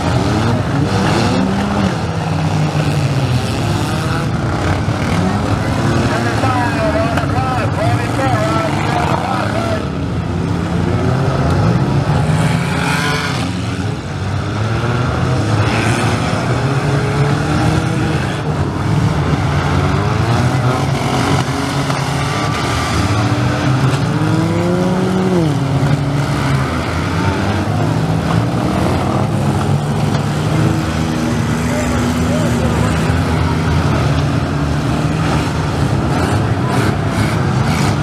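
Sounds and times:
car engines revving: 0.0 - 38.0.

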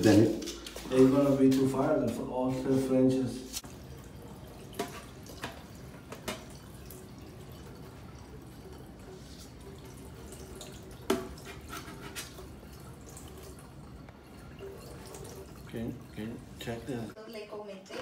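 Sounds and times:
water dripping into metal sink: 3.6 - 17.2.

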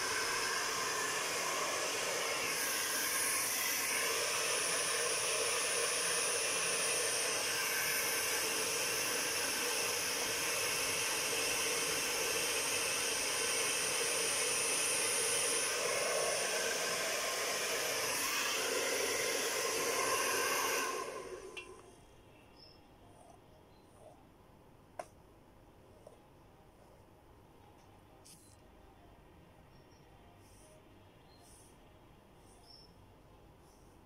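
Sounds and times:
hair dryer running: 0.0 - 21.9.

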